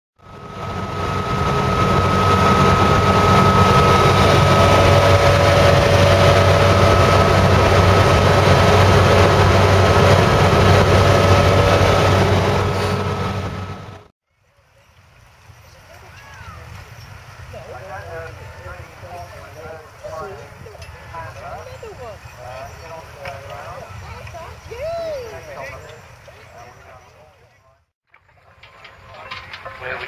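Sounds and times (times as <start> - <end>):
car engine and road noise: 0.2 - 14.1.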